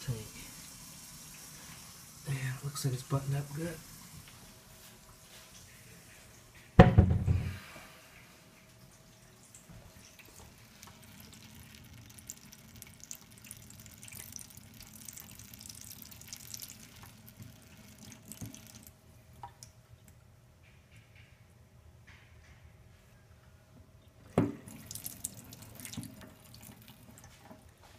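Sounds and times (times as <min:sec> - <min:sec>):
faucet stream into steel sink: 0:09.6 - 0:18.9, 0:24.6 - 0:27.4.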